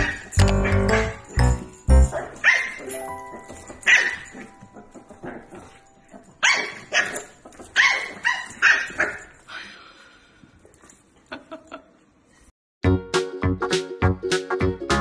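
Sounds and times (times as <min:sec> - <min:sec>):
background music: 0:00.0 - 0:06.4, 0:12.8 - 0:15.0
puppy yapping: 0:02.2 - 0:09.3.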